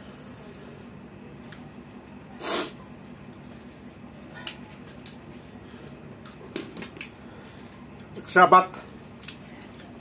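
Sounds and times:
low background hum: 0.0s - 10.0s
chewing: 4.4s - 5.5s, 9.1s - 10.0s.

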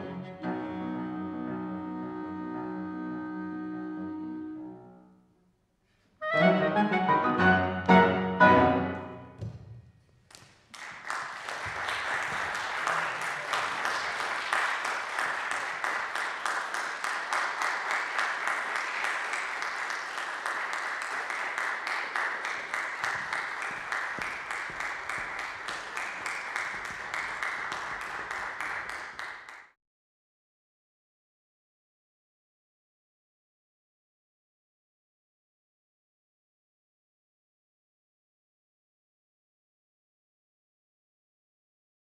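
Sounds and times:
clarinet cello and piano chords: 0.0s - 5.2s, 6.2s - 9.3s
audience applause: 10.3s - 29.7s.

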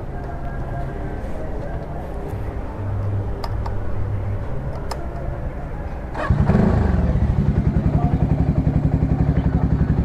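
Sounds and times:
motorcycle engine idling: 6.1s - 10.0s
motorcycle engine starting clatter: 6.1s - 10.0s.

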